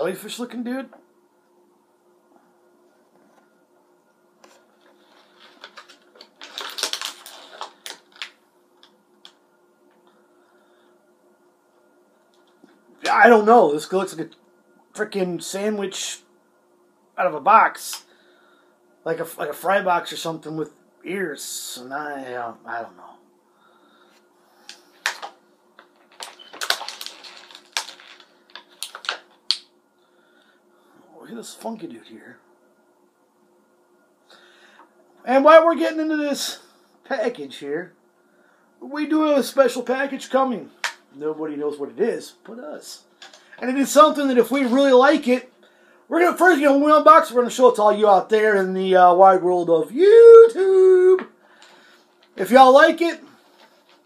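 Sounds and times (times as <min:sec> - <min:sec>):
plastic packet crinkling: 0:04.8 - 0:09.4, 0:24.9 - 0:29.7.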